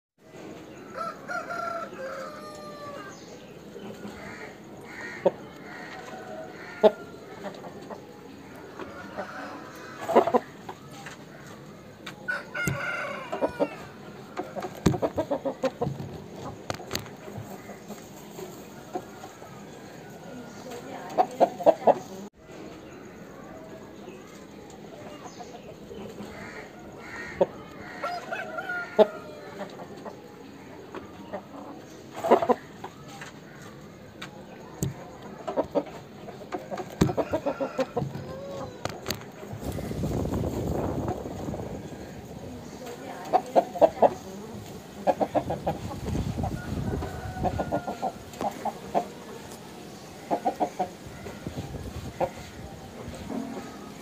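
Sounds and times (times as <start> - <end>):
chickens clucking: 0.2 - 54.0
rooster crowing: 0.9 - 3.2, 8.8 - 10.0, 12.3 - 14.0, 27.2 - 29.6, 37.0 - 38.8, 46.5 - 48.2.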